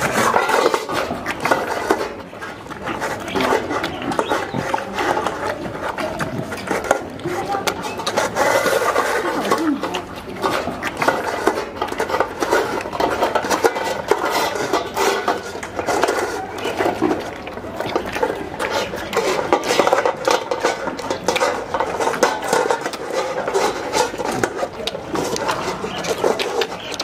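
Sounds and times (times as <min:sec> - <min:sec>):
animal chewing and lapping: 0:00.0 - 0:27.0
metal bowl clinking and scraping: 0:00.0 - 0:27.0.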